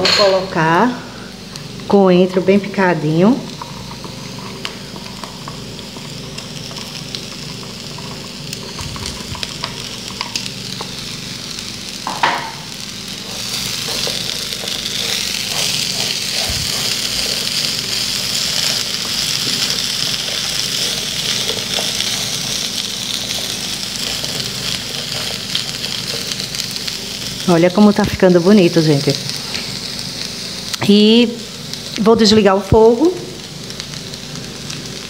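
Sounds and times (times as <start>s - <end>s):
food sizzling in a frying pan: 0.0s - 35.0s
spatula scraping and clicking: 13.2s - 19.7s.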